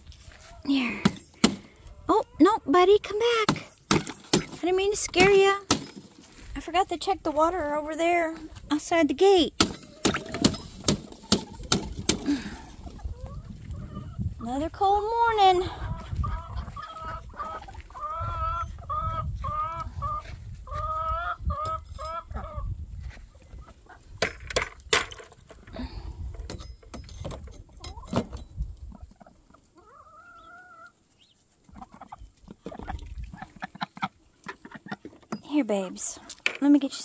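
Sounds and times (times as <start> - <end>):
chickens clucking: 9.8 - 24.2, 27.6 - 36.4
wind rumble on microphone: 11.5 - 25.0, 28.1 - 29.1.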